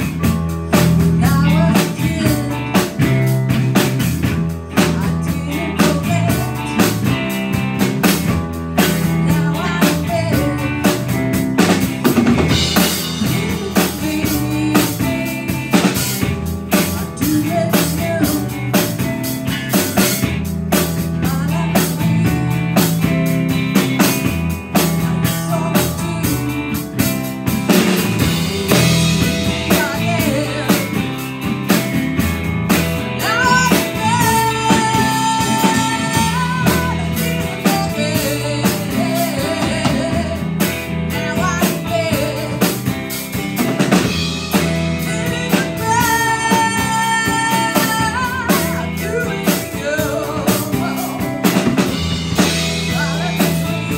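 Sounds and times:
live rock-blues band: 0.0s - 53.9s
woman singing: 0.7s - 31.7s, 33.0s - 43.1s, 44.9s - 53.9s.

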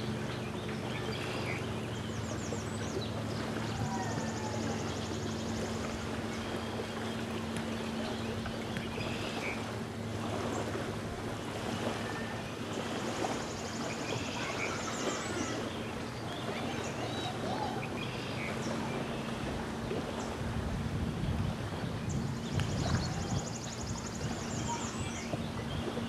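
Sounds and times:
constant low hum: 0.0s - 26.0s
waves lapping on sandy shore: 0.0s - 26.0s
wind: 0.0s - 26.0s.

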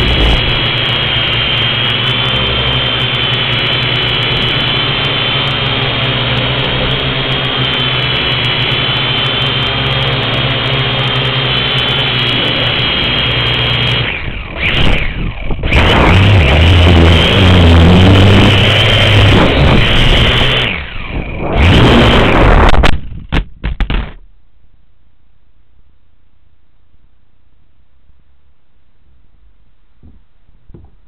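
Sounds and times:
quadcopter motors whining: 0.0s - 23.1s.

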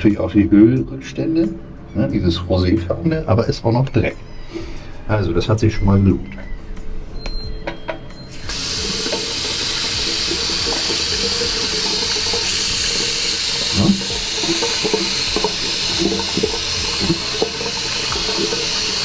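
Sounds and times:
tap water running and splashing: 8.5s - 19.0s.

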